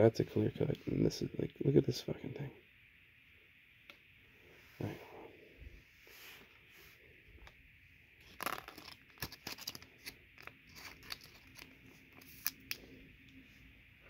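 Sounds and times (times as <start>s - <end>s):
cards clicking and rustling: 8.2s - 12.9s.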